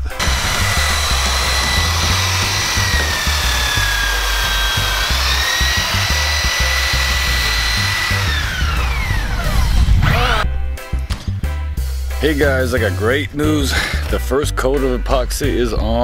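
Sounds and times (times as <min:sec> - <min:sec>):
electric planer whining: 0:00.0 - 0:10.4.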